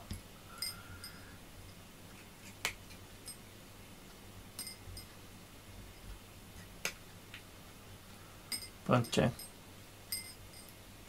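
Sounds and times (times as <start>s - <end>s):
light clink of bowl: 8.5s - 10.8s.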